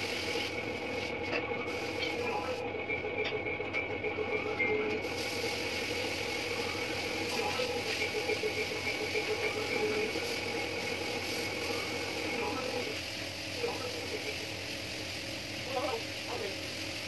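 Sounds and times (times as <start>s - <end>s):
paint spray gun hissing: 0.0s - 2.3s, 5.0s - 17.0s
machine humming: 0.0s - 16.5s.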